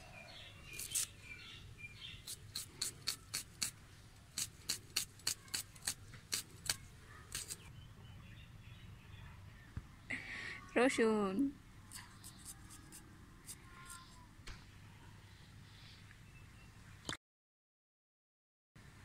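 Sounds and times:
onion slicing on a blade: 0:00.7 - 0:01.1, 0:02.2 - 0:07.7.

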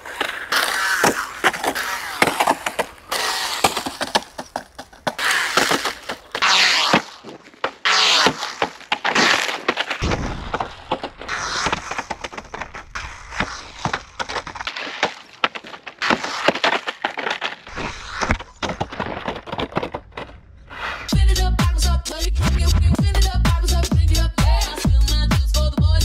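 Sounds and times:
tyres crunching on gravel: 0:00.0 - 0:21.1.

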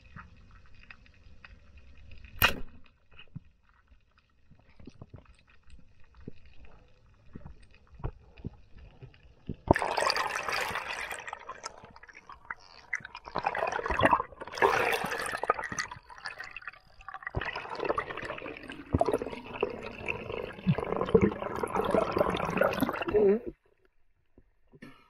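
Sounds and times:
small clicks and pops: 0:00.0 - 0:09.8
underwater bubbling: 0:04.5 - 0:23.6.

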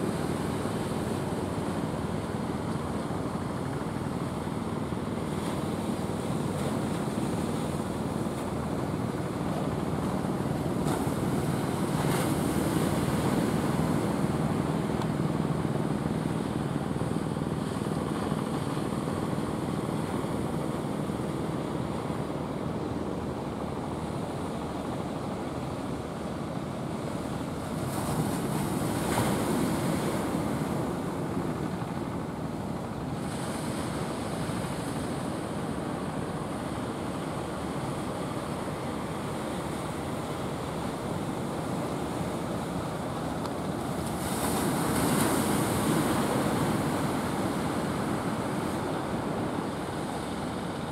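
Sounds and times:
ocean surf breaking: 0:38.2 - 0:50.9.

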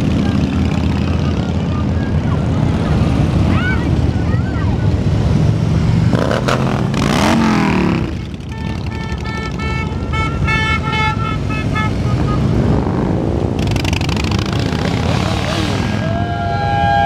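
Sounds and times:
motorcycles riding past: 0:00.0 - 0:17.0
horn tooting: 0:07.1 - 0:12.9.

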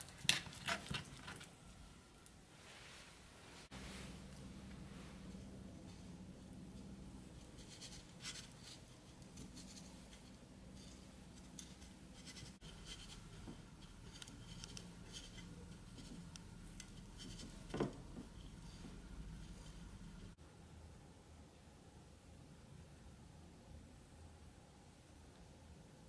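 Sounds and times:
faint scratching and rustling: 0:02.5 - 0:20.4.

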